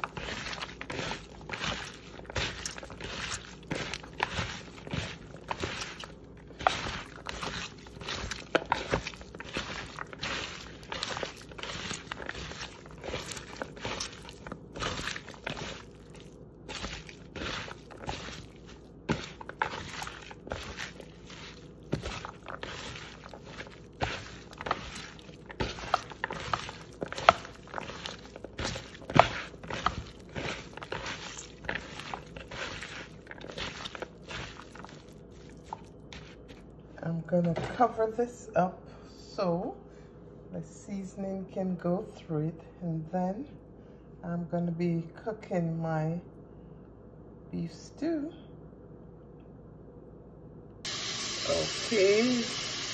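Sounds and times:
hands rubbing meat in bowl: 0.0s - 38.0s.

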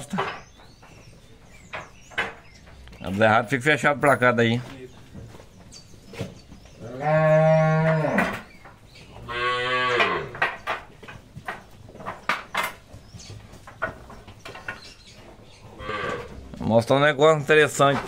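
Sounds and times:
knocks and clatter: 0.0s - 6.7s, 10.0s - 16.5s, 17.6s - 18.0s
cow mooing: 6.8s - 8.4s, 9.2s - 10.4s, 15.8s - 16.4s.

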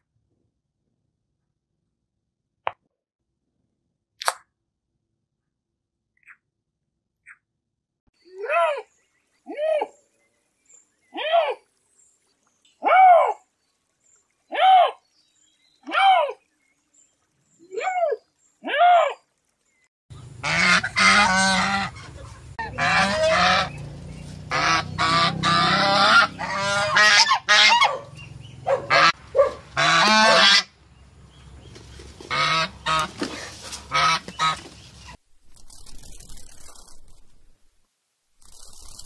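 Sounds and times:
waterfowl honking: 20.4s - 23.8s, 24.5s - 28.1s, 28.7s - 30.7s, 32.3s - 33.2s, 33.9s - 34.7s.

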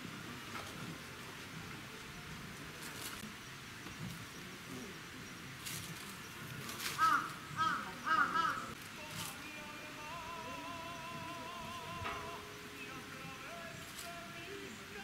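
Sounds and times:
faint outdoor background: 0.0s - 15.0s
bird calling: 3.8s - 15.0s.

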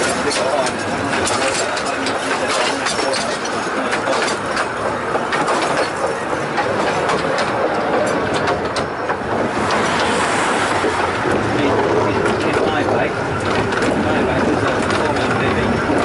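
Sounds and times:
train carriage rumble and rattle: 0.0s - 16.0s
wheel clicks over rails: 0.0s - 16.0s.

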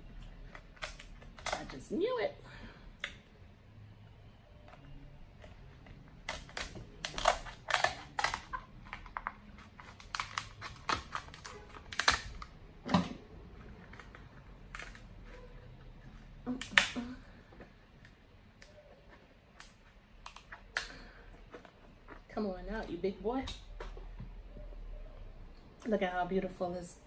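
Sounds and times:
scissors crunching crab shell: 6.2s - 9.1s, 9.8s - 12.4s.

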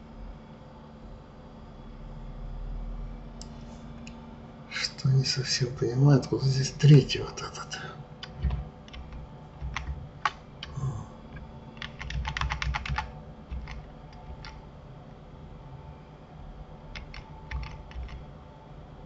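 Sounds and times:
computer keyboard keystrokes: 8.2s - 14.6s, 16.9s - 18.3s.

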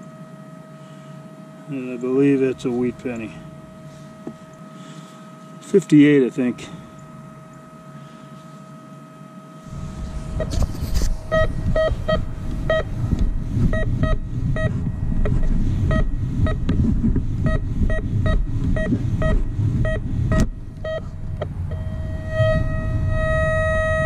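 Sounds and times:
loud low noise: 9.6s - 24.0s
metal detector beeping: 10.3s - 13.0s, 13.6s - 16.7s, 17.4s - 24.0s.

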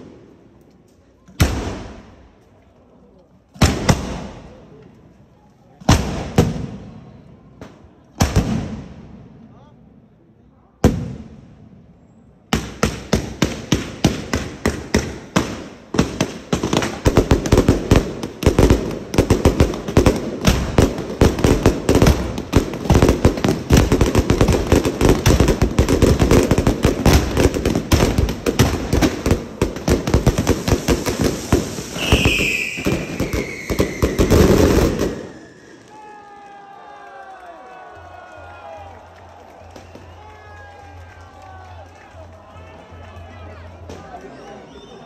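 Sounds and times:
firework bangs and crackles: 1.2s - 2.4s, 3.5s - 5.0s, 5.8s - 9.5s, 10.8s - 36.0s.

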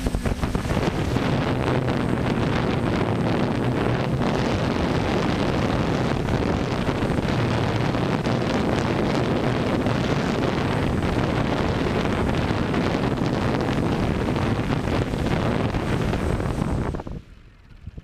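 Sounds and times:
drone motors and propellers: 0.0s - 18.0s
faint high whine: 0.0s - 18.0s
wind on microphone: 0.0s - 18.0s.

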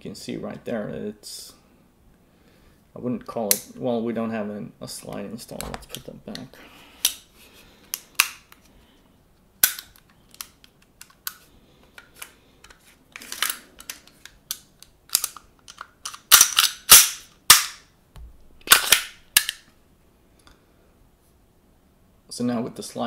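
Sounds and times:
pistol slide clicks and clacks: 9.6s - 11.4s, 12.0s - 17.8s, 18.6s - 19.7s
pistol slide scraping: 18.6s - 19.7s.

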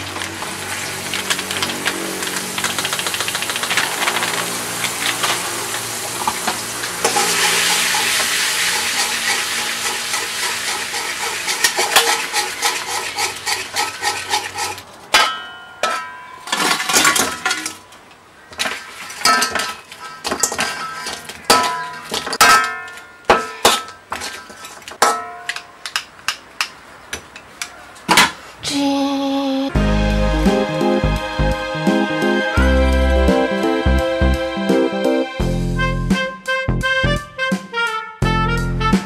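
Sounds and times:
sauce sizzling in a wok: 0.0s - 14.7s
metal ladle scraping wok: 4.8s - 15.0s, 18.6s - 22.4s, 23.7s - 24.9s
ladle clanking against wok: 7.0s - 16.2s.

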